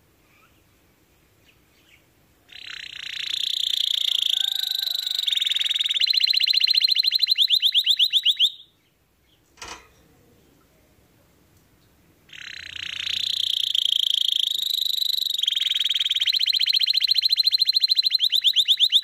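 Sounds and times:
canary singing and trilling: 1.4 - 9.4, 12.3 - 19.0.

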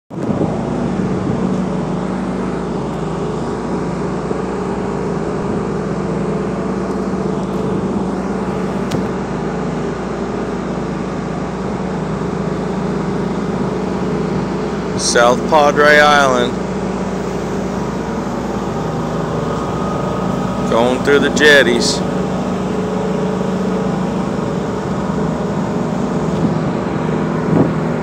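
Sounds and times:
motorboat engine droning: 0.1 - 28.0
wind and water rushing: 0.1 - 28.0.

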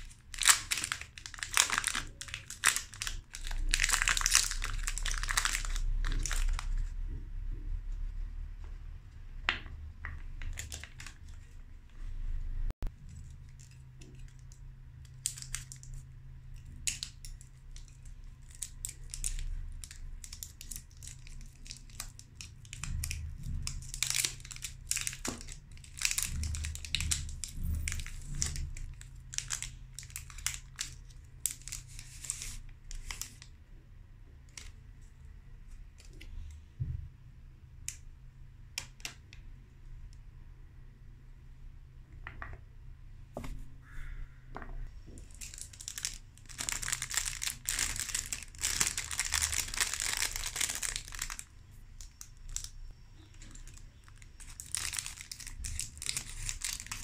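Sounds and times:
foil wrapper crinkling and tearing: 0.0 - 6.9, 18.5 - 33.5, 45.3 - 52.8, 53.4 - 57.0.

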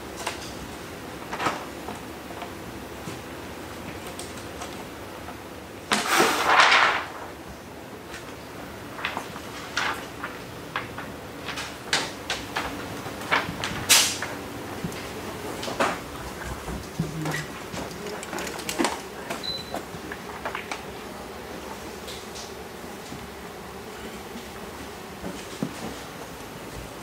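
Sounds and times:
plastic film rustling and crackling: 8.1 - 22.6.

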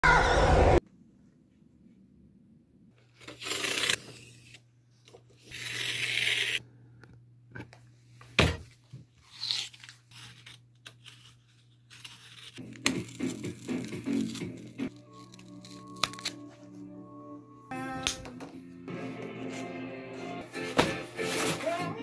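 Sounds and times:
cardboard tearing: 3.2 - 4.4, 9.2 - 16.4
craft knife cutting cardboard: 3.2 - 4.6, 5.4 - 6.6, 9.2 - 14.8.

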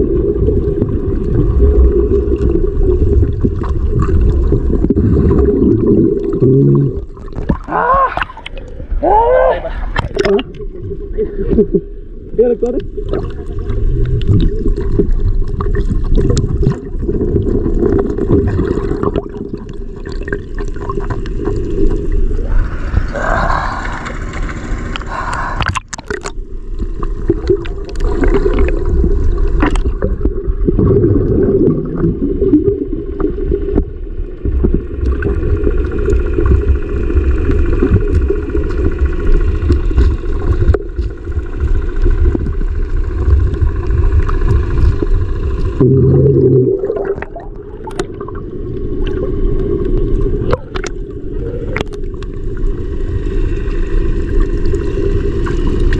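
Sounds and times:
water splashing: 0.0 - 11.6, 37.8 - 52.8
muffled underwater churning rumble: 0.0 - 55.9.

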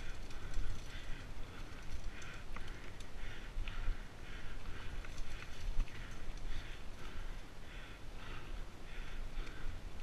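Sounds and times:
bike frame rattle: 0.0 - 3.4.

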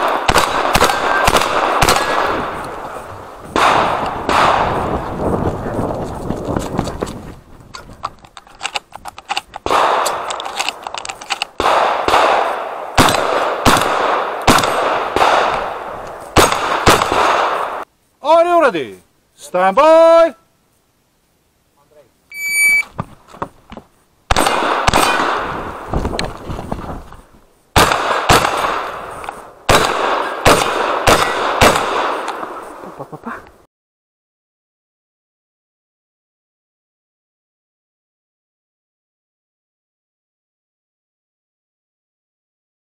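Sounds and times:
loud gunshots: 0.0 - 2.6, 3.6 - 5.0, 9.7 - 10.3, 11.6 - 17.8, 24.3 - 25.7, 27.8 - 29.1, 29.7 - 32.3
shotgun shots: 0.0 - 2.8, 3.6 - 5.0, 9.6 - 10.8, 11.6 - 17.8, 24.3 - 25.9, 27.8 - 32.6
light clicks and rattles: 5.9 - 11.6.

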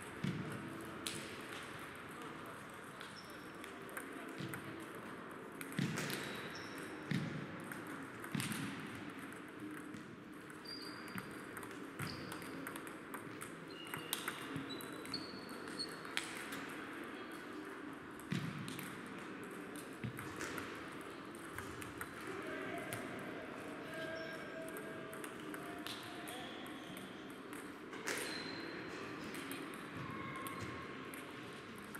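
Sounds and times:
shoe squeaks on floor: 10.6 - 11.2, 12.0 - 12.5, 28.1 - 28.7.

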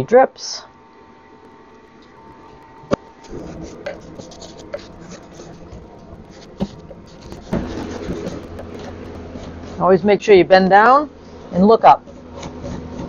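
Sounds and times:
sharp knocks: 1.4 - 9.6
paintbrush scratching on wood: 2.2 - 9.8.

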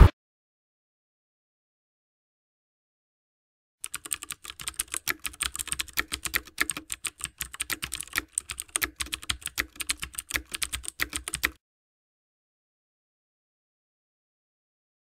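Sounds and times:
keyboard typing clicks: 3.8 - 11.6.

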